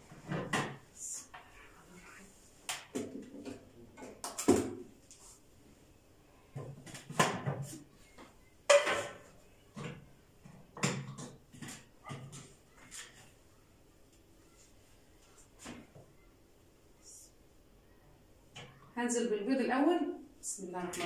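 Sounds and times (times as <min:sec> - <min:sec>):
plastic parts clacking and knocking: 0:08.7 - 0:13.2.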